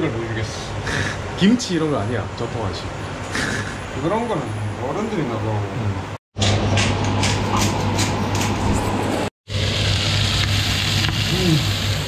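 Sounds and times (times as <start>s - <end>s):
pork sizzling in a frying pan: 9.5s - 12.0s.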